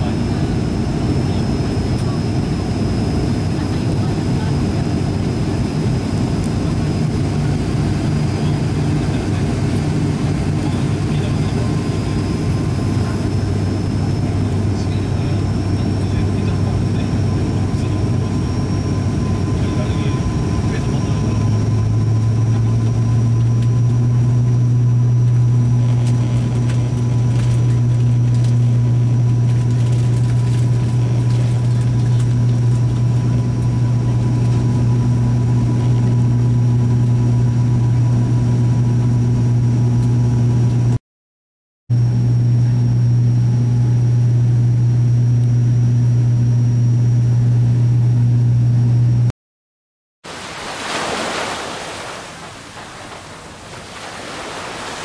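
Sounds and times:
aircraft engines droning: 0.0s - 41.0s
surf on a beach: 50.3s - 55.0s
wind: 50.3s - 55.0s.

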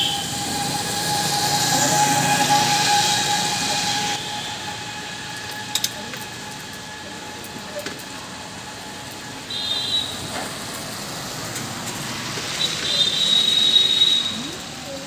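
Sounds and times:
high-pitched tone: 0.0s - 4.9s.

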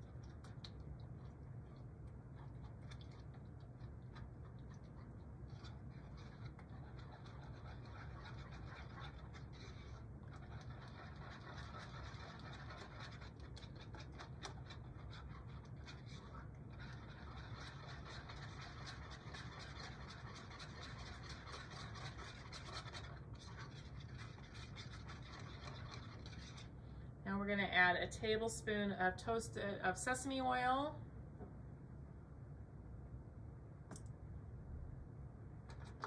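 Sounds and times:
whisk scraping a bowl: 0.0s - 26.8s.

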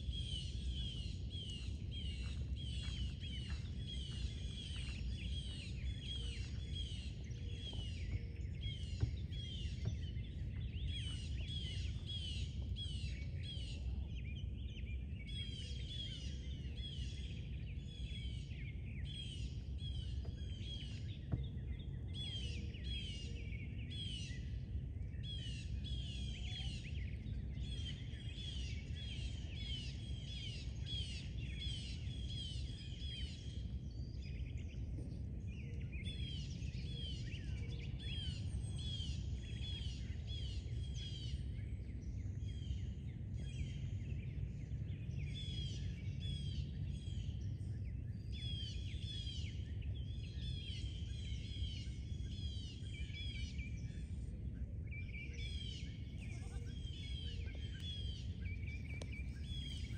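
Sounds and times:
birds chirping: 35.8s - 59.9s.

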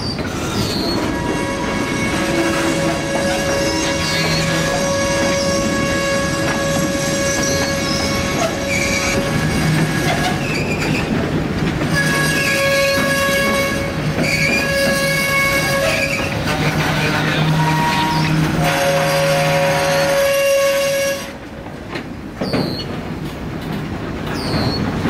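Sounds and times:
train wheels squealing: 0.0s - 11.1s, 11.9s - 16.4s, 17.0s - 18.5s, 22.4s - 23.0s, 24.3s - 25.0s
train rumble: 0.0s - 25.0s.

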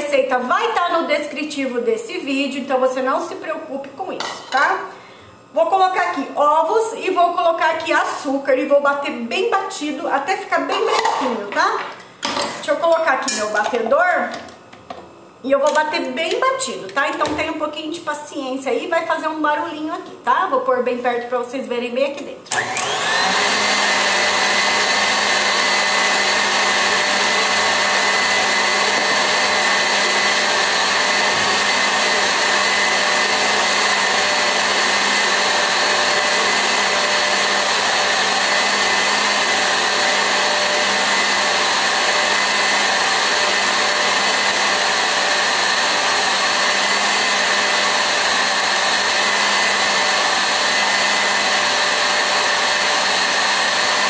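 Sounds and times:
stand mixer motor whine: 22.5s - 54.0s.

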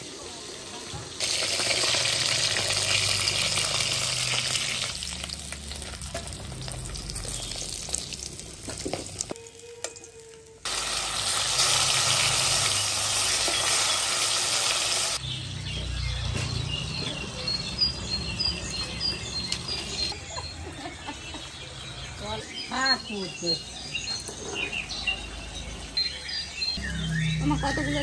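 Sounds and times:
fish sizzling in hot oil: 0.0s - 15.2s.

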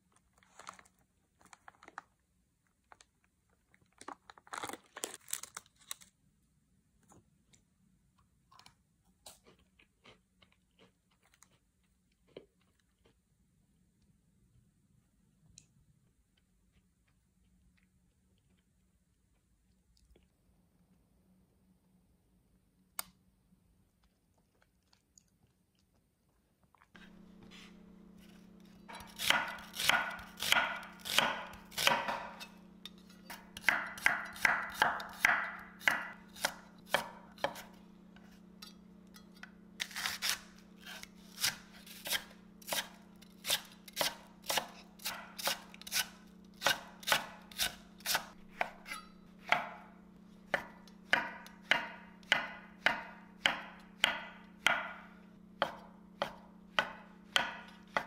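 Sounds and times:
knife chopping on wooden board: 27.0s - 38.4s, 39.8s - 49.9s, 50.5s - 58.0s
steady low hum: 27.0s - 58.0s.

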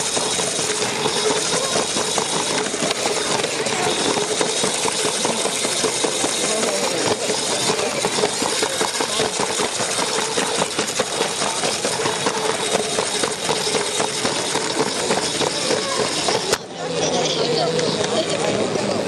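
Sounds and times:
toy train wheels rattling: 0.0s - 19.0s.

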